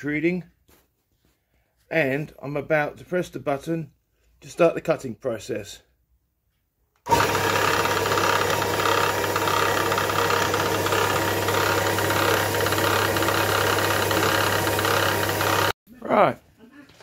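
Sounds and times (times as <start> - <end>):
electric bandsaw cutting steel: 7.1 - 15.8.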